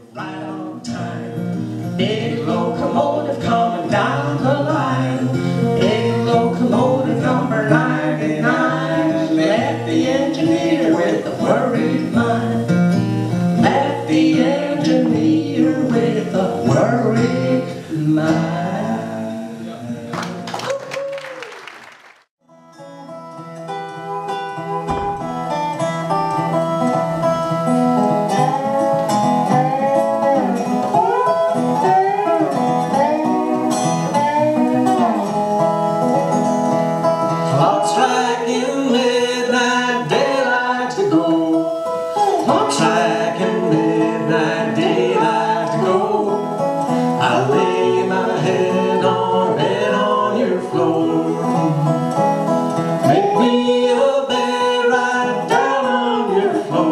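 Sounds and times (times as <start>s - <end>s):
resonator guitar sliding notes: 22.6s - 56.9s.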